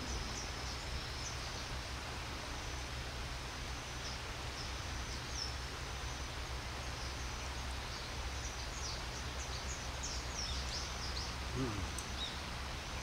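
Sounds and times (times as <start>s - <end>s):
river flowing: 0.0s - 13.0s
small bird chirping: 6.9s - 13.0s.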